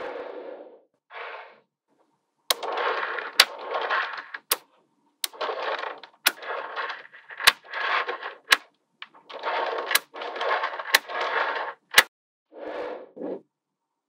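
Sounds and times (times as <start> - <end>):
magnetic balls rattling and rolling: 2.5 - 12.1.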